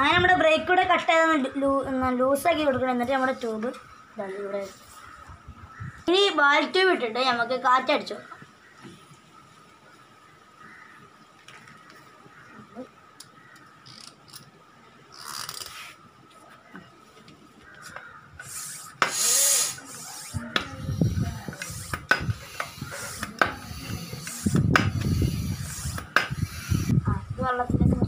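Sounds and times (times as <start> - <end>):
bicycle pump strokes: 13.8 - 14.4, 15.1 - 16.0, 18.4 - 27.0
air hissing: 18.4 - 27.1.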